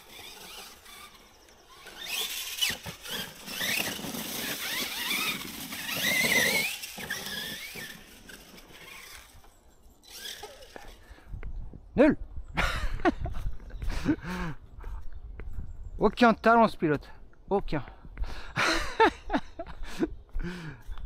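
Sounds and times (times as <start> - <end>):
electric motor whine: 0.0 - 9.4.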